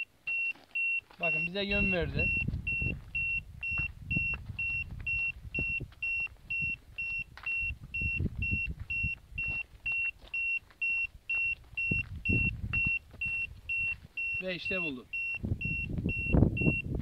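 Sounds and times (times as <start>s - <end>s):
metal detector beeping: 0.0s - 17.0s
low rumbling and thumps: 1.8s - 9.9s, 11.6s - 14.2s.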